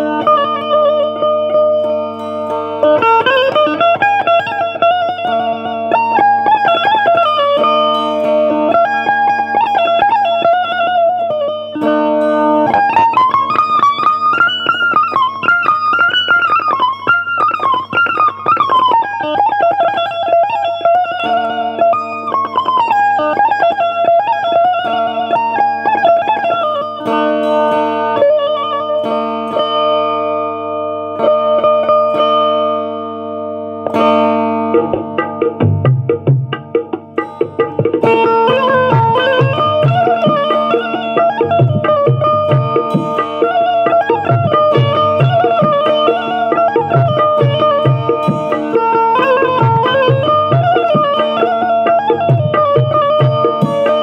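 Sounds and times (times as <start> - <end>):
zither drone strings: 0.0 - 54.0
zither playing ornamented melody: 36.9 - 54.0.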